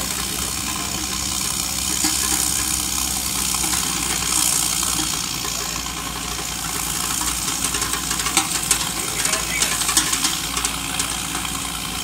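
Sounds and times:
crackles and ticks: 0.0 - 12.0
machine engine running: 0.0 - 12.0.

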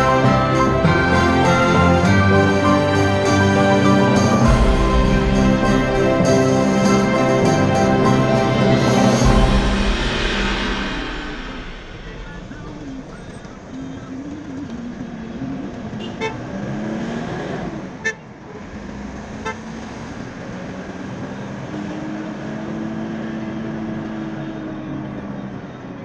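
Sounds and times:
car engine and road noise: 0.0 - 26.0
car horn toots: 15.9 - 16.5.

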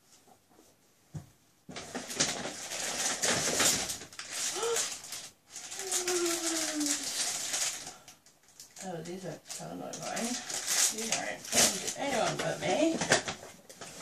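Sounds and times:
plastic wrapping crinkling: 1.7 - 14.0
person saying ooh: 4.5 - 4.9, 5.7 - 7.0.

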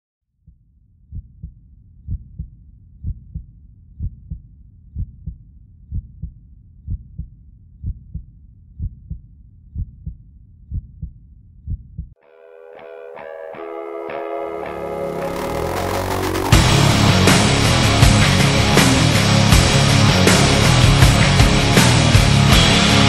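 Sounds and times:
heartbeat thumps: 1.1 - 12.2
low rumble: 14.8 - 21.7.

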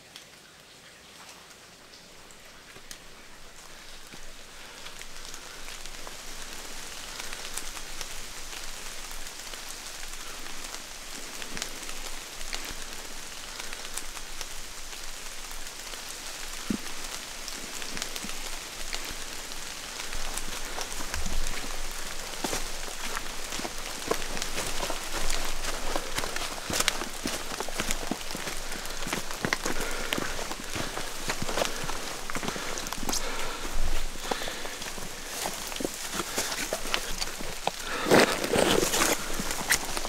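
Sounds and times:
rain dripping in forest: 0.0 - 40.0
low footsteps: 16.6 - 40.0.

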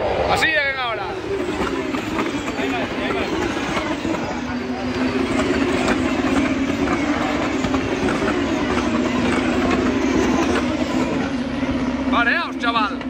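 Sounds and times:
racing car engines droning: 0.0 - 13.0.

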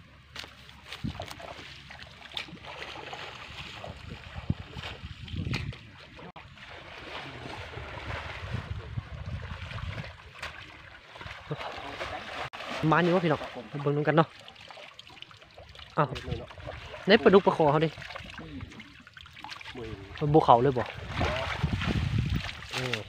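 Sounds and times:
pond water splashing and sloshing: 0.0 - 23.0
low rumble: 3.6 - 10.4.

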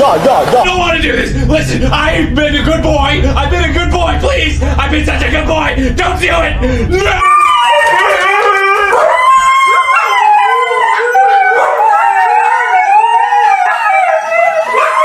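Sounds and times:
dog howling: 6.9 - 15.0.

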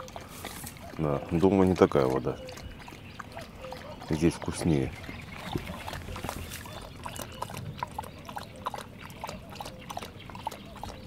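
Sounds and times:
dog lapping water: 0.0 - 11.0.

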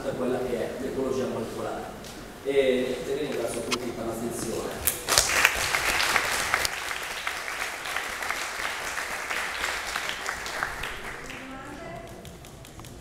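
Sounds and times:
audience applauding: 4.9 - 11.6.

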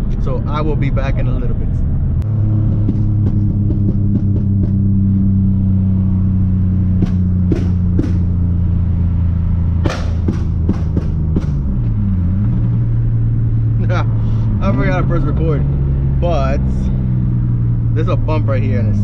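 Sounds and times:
car engine droning: 0.0 - 19.0
sharp clicks or knocks: 9.8 - 11.7.

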